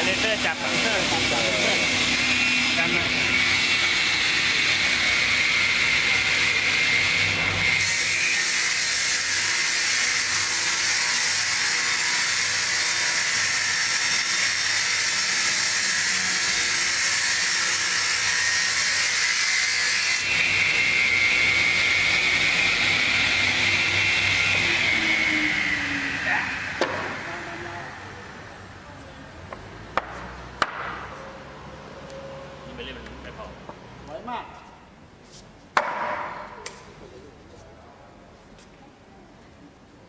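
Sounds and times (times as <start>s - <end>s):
saw blades cutting wood: 0.0s - 28.3s
saw machine whining: 0.0s - 28.5s.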